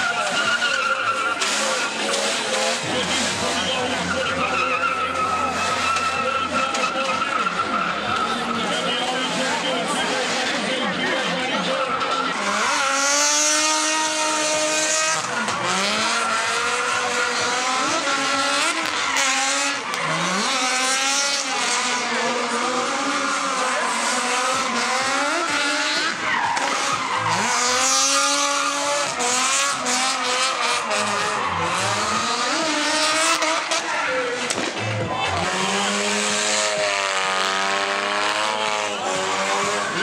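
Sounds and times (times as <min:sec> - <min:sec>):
car engines revving: 0:00.0 - 0:40.0
tires squealing: 0:00.0 - 0:40.0.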